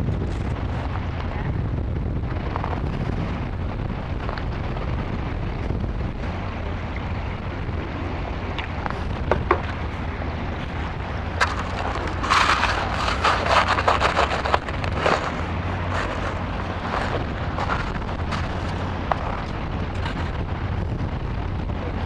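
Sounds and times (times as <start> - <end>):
wind buffeting microphone: 0.0 - 22.0
metal scoop crunching into sand: 11.4 - 18.6.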